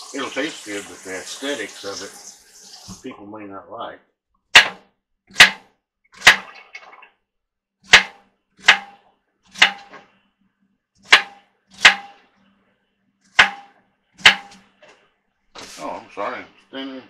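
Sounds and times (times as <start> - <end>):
knife chopping on wooden board: 4.6 - 6.4, 7.9 - 9.0, 9.6 - 10.0, 11.1 - 12.2, 13.4 - 14.6.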